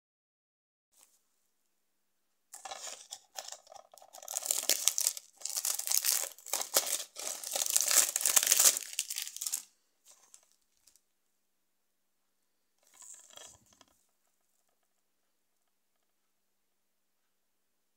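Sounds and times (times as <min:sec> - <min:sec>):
plastic shrink-wrap tearing: 0:02.6 - 0:09.7.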